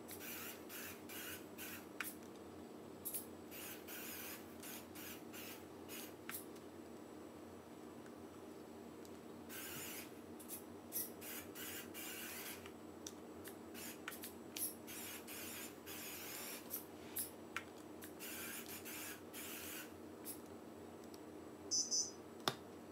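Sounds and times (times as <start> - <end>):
small motors whirring: 0.1 - 1.8, 9.5 - 10.1, 11.0 - 12.7
high-pitched squeak: 21.7 - 22.2.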